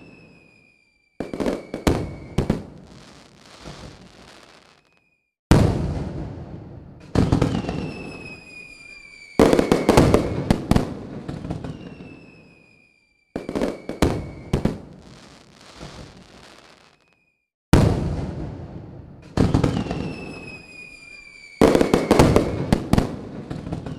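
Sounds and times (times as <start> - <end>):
high descending whistle: 0.0 - 2.4, 7.6 - 10.5, 11.6 - 14.6, 19.8 - 22.7
firework crackle: 0.0 - 6.2, 7.1 - 17.3, 19.4 - 23.9.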